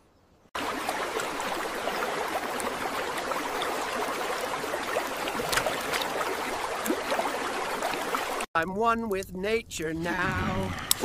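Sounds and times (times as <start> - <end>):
small water drips: 0.6 - 8.5
water trickling into drain: 0.6 - 8.5.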